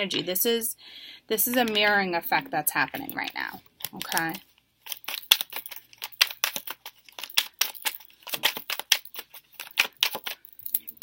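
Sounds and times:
card deck being shuffled: 2.8s - 10.6s.

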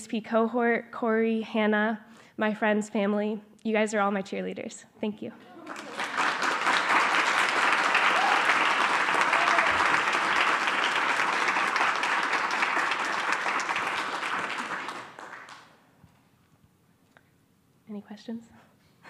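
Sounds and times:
audience applauding: 5.5s - 15.8s.

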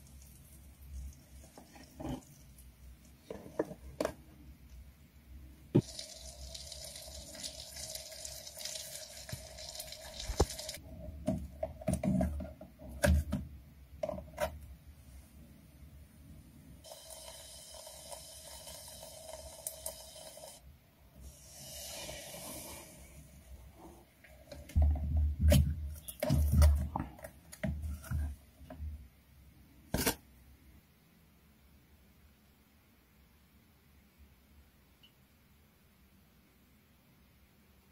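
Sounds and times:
batter sizzling in oil: 5.8s - 10.8s.

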